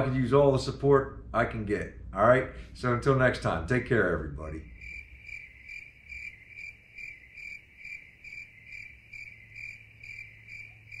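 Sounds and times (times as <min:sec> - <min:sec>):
faint low hum: 0:00.0 - 0:11.0
cricket chirping: 0:04.6 - 0:11.0.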